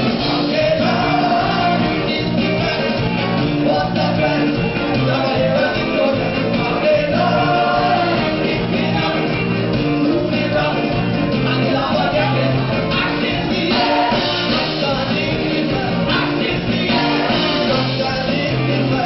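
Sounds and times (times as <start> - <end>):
drum kit: 0.0 - 19.0
live band playing upbeat song: 0.0 - 19.0
man singing into microphone: 0.0 - 19.0
trombone: 11.4 - 18.4.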